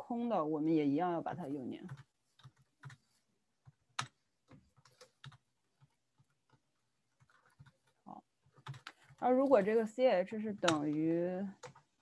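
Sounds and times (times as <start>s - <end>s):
computer keyboard keystrokes: 7.2s - 9.2s, 10.6s - 12.0s.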